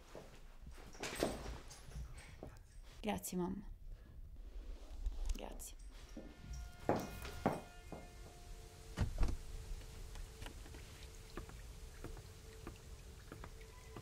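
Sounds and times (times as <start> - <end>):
faint steady hum: 3.6 - 14.0
water dripping from branches: 9.6 - 14.0.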